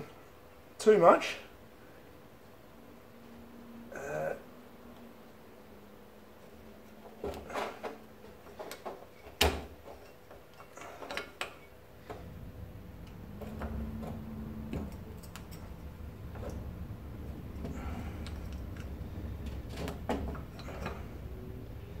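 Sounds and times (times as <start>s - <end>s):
low hum: 11.9s - 22.0s.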